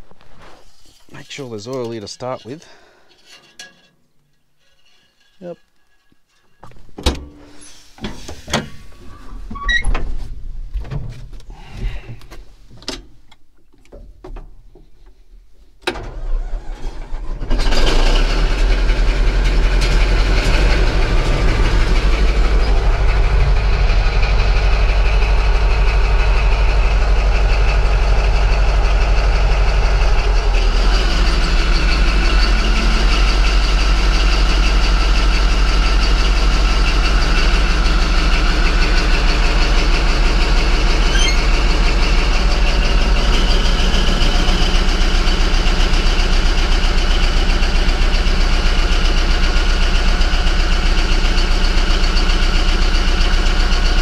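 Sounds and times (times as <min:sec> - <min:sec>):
bulldozer diesel engine running: 0:16.0 - 0:54.0.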